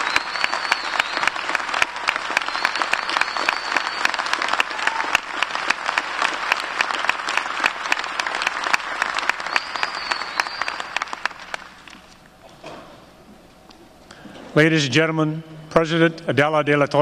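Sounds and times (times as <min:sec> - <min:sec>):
high whistle: 0:00.0 - 0:05.2, 0:09.3 - 0:11.4
audience applauding: 0:00.0 - 0:12.2.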